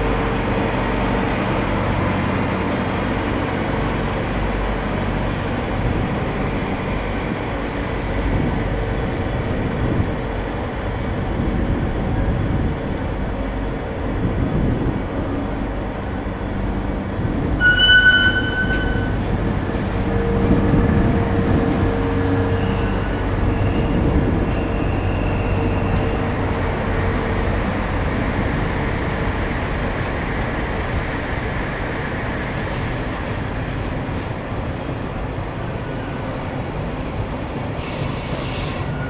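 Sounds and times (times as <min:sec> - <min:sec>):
train wheels rumbling on rail: 0:00.0 - 0:39.0
high squeal: 0:17.6 - 0:19.2, 0:37.8 - 0:39.0.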